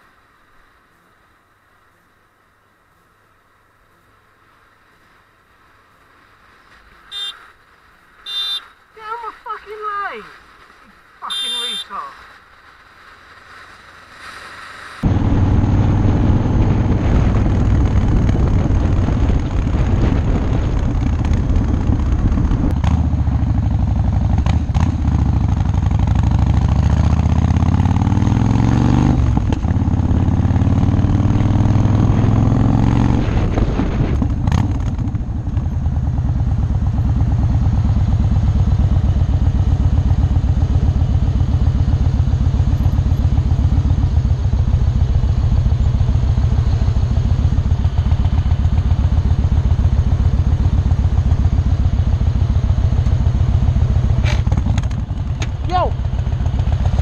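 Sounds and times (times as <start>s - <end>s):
motorcycle engine revving: 13.7s - 57.0s.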